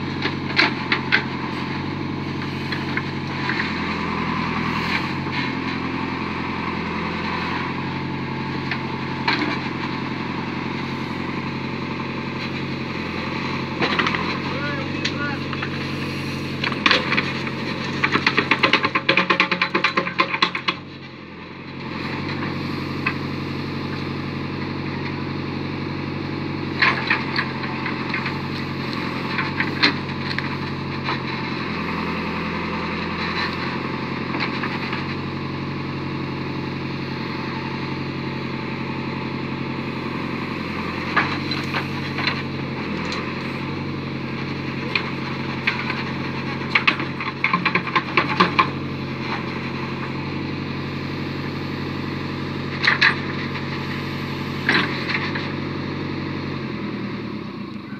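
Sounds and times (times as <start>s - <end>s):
diesel engine running under load: 0.0s - 57.9s
falling earth and stones: 0.3s - 20.9s.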